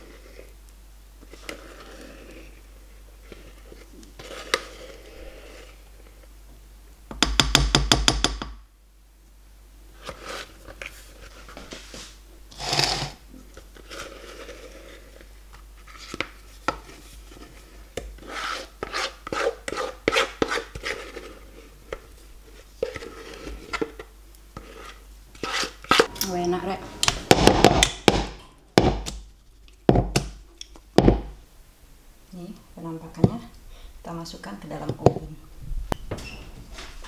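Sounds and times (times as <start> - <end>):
spatula scraping mixing bowl: 0.0 - 0.6, 1.2 - 6.1, 10.0 - 29.1.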